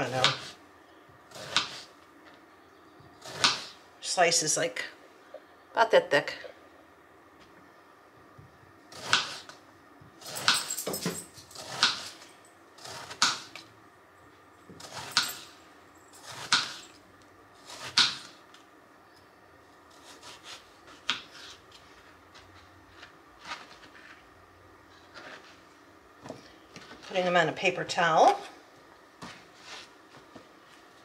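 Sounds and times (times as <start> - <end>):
knife slicing eggplant: 1.3 - 1.9, 3.2 - 3.8, 8.9 - 9.6, 12.8 - 13.7, 17.6 - 18.4, 19.9 - 21.6.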